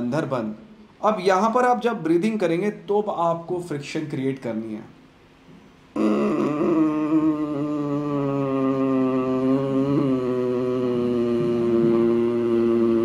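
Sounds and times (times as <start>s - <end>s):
man's throaty breathing drone: 6.0s - 13.0s.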